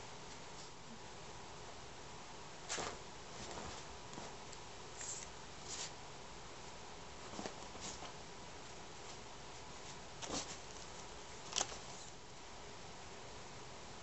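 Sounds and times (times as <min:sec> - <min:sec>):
steady background hiss: 0:00.0 - 0:14.0
bed sheet rustling: 0:02.5 - 0:06.0, 0:06.6 - 0:12.2.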